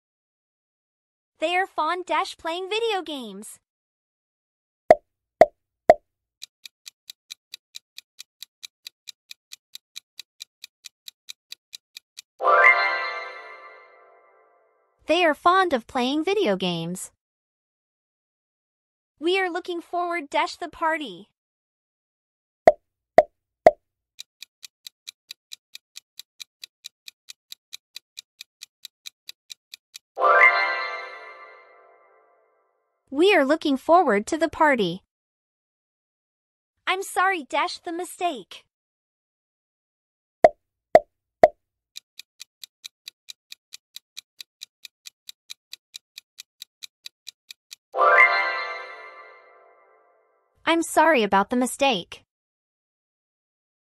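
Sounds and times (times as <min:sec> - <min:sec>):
clock-like countdown ticking: 0:06.4 - 0:12.4, 0:24.2 - 0:30.2, 0:42.0 - 0:47.9.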